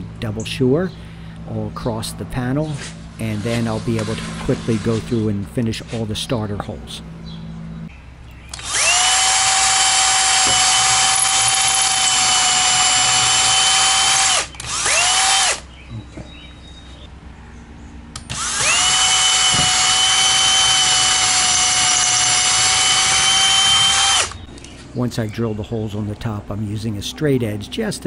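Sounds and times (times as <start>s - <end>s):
cordless drill whining: 8.5s - 15.6s, 18.2s - 24.5s.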